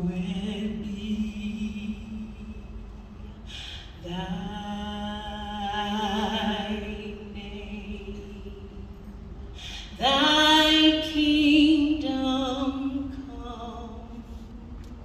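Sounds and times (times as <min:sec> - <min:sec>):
woman singing: 0:00.0 - 0:03.0, 0:04.0 - 0:09.0, 0:09.8 - 0:14.5
breath: 0:03.5 - 0:04.0, 0:09.5 - 0:10.0.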